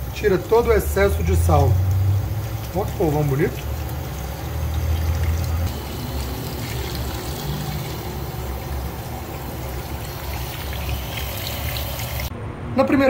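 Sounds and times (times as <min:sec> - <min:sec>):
tap water splashing: 0:01.7 - 0:12.3.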